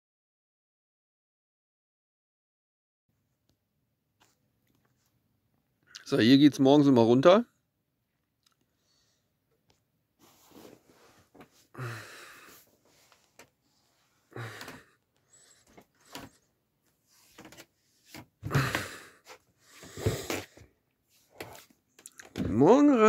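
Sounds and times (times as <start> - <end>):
breathy puffs: 10.2 - 16.6, 18.4 - 21.7.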